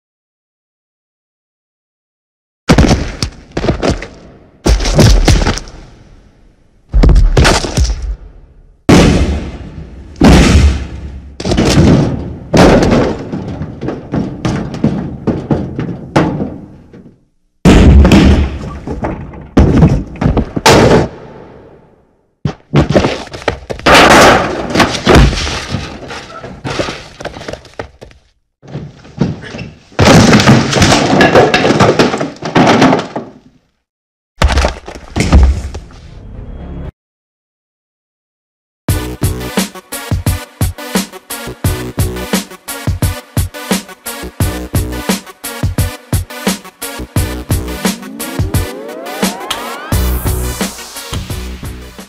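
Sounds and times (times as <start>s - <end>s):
punch and thud impacts: 2.7s - 5.8s, 6.9s - 8.2s, 8.9s - 16.6s, 17.6s - 21.2s, 22.5s - 25.8s, 30.0s - 31.3s, 34.4s - 35.8s
crashing and breaking: 11.4s - 16.6s, 22.7s - 27.8s, 30.0s - 33.5s, 34.4s - 35.7s.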